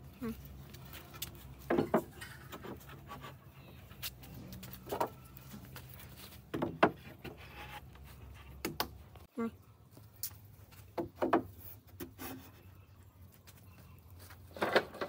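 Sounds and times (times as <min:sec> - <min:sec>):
wood knocking: 0:06.5 - 0:07.4, 0:11.0 - 0:11.5.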